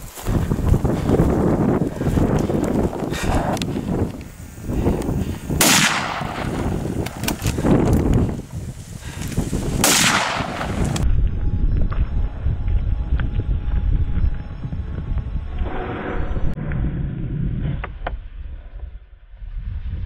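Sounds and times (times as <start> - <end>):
wind rumbling on microphone: 0.0 - 20.0
rifle shots echoing: 5.6 - 7.2, 9.8 - 11.0.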